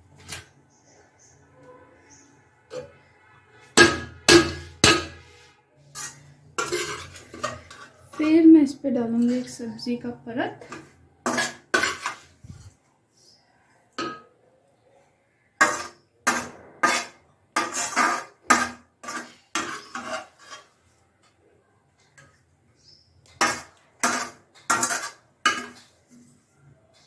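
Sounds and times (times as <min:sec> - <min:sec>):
metal spoon scraping steel pan: 0:00.2 - 0:08.4, 0:09.0 - 0:09.8, 0:10.6 - 0:12.8, 0:15.6 - 0:20.9, 0:23.2 - 0:26.4.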